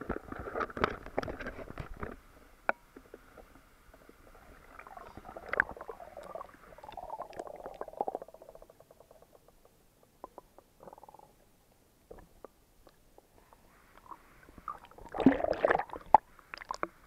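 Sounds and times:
underwater clicking and bubbling: 0:00.0 - 0:11.4, 0:12.1 - 0:17.0
water splashing and sloshing: 0:13.4 - 0:17.0.

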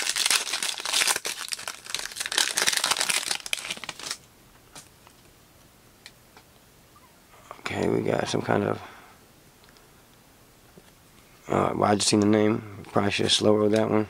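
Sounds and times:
foil wrapper tearing and crinkling: 0:00.0 - 0:04.2.

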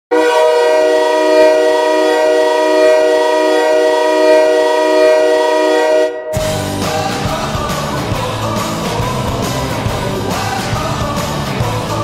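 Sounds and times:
air horn blast: 0:00.1 - 0:06.8.

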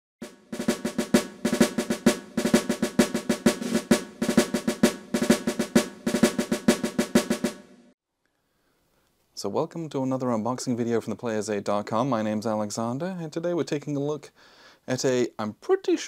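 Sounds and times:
snare drum cadence: 0:00.2 - 0:08.0.

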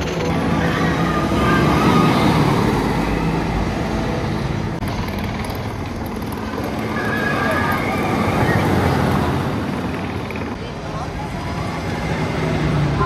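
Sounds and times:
roller coaster rumbling and rattling: 0:00.0 - 0:13.0.

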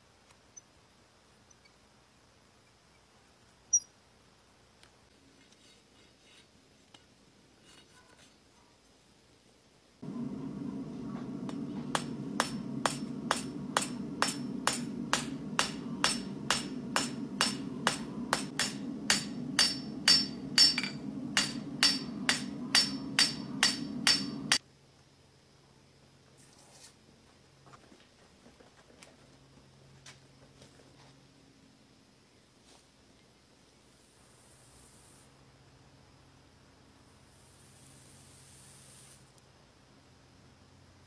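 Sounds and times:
hammer striking metal on anvil: 0:10.0 - 0:24.6
steady low hum: 0:10.0 - 0:24.6.

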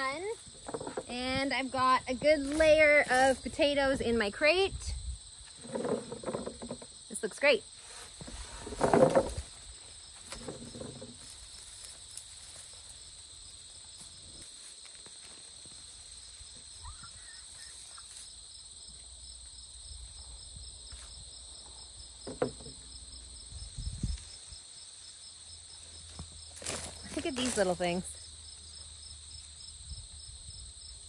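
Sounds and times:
rustles: 0:00.0 - 0:04.2, 0:05.0 - 0:21.9, 0:23.2 - 0:29.7
insect chorus trilling: 0:00.0 - 0:31.0.

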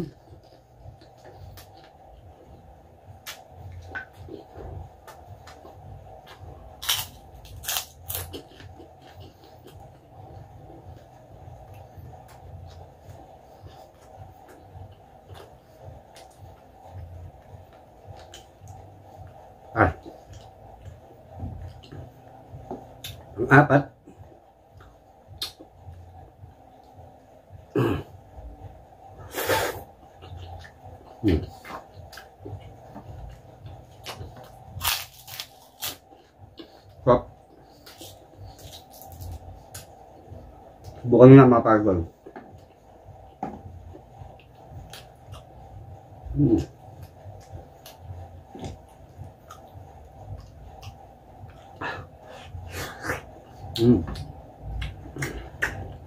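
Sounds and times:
chewing with wet smacks: 0:00.0 - 0:19.4, 0:43.9 - 0:56.0
throaty sound: 0:27.6 - 0:28.2.

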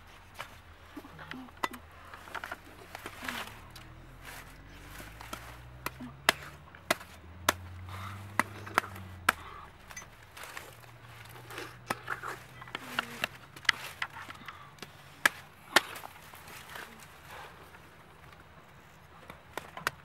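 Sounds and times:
cleaver chopping fruit: 0:02.9 - 0:17.0.

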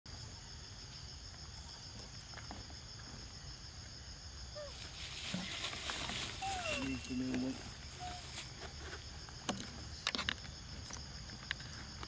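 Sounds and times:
rustle: 0:00.3 - 0:12.0
high-pitched insect drone: 0:02.9 - 0:11.9.

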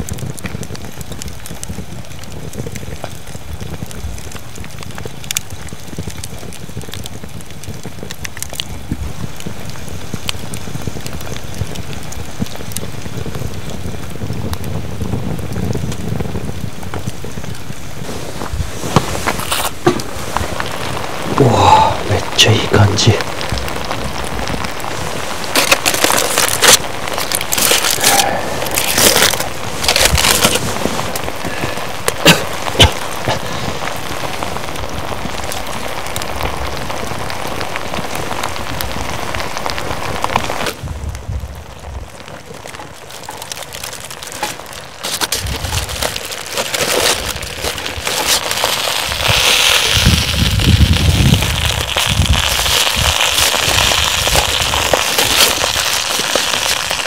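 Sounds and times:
campfire crackling and popping: 0:00.0 - 0:57.0
aluminium foil crinkling: 0:18.0 - 0:40.8, 0:41.8 - 0:57.0
sizzling hiss from pot: 0:42.6 - 0:57.0.

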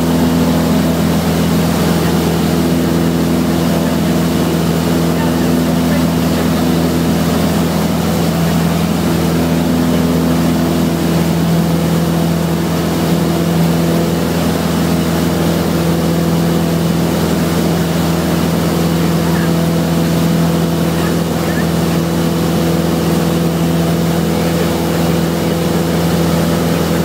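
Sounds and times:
light airplane engine droning: 0:00.0 - 0:27.0.

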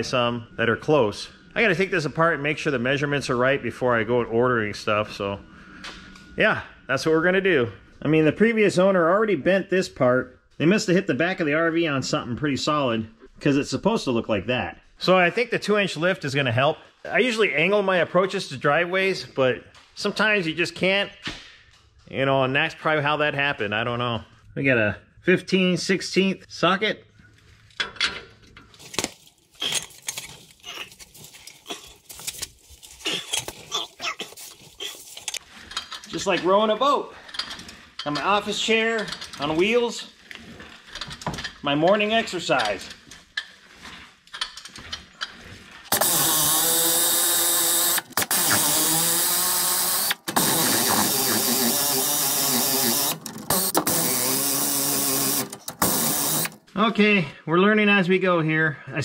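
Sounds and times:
ratchet clicking: 0:45.9 - 0:56.6.

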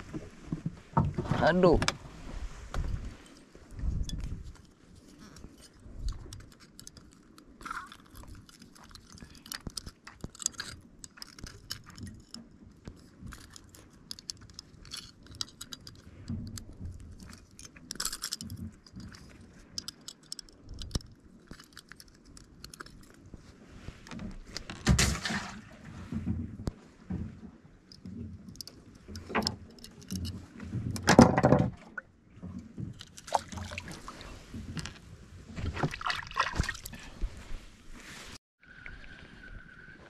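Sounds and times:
metal pliers and hooks clinking: 0:17.2 - 0:23.1.

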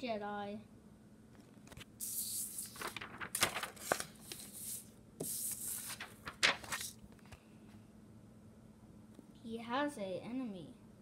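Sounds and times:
rustling and scraping from handling: 0:02.7 - 0:07.0.

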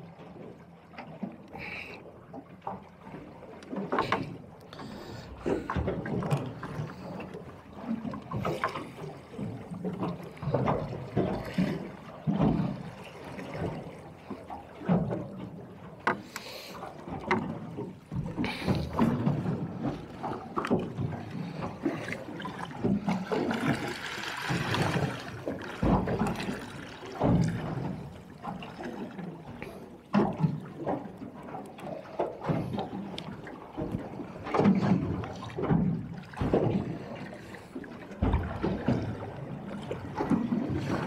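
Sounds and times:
waves splashing against boat hull: 0:00.0 - 0:41.0
knocks on boat: 0:09.4 - 0:12.9, 0:14.8 - 0:16.3, 0:17.1 - 0:21.9, 0:24.5 - 0:28.6, 0:30.1 - 0:31.1, 0:33.8 - 0:37.1, 0:38.1 - 0:41.0.

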